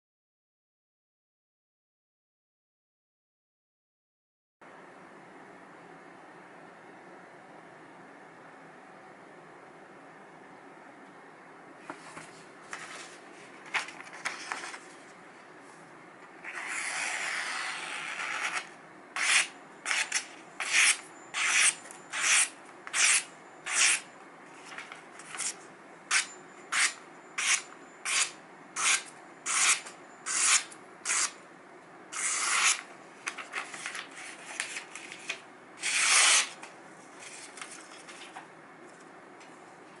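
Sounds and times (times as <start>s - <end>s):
knife slicing paper: 32.2s - 36.6s.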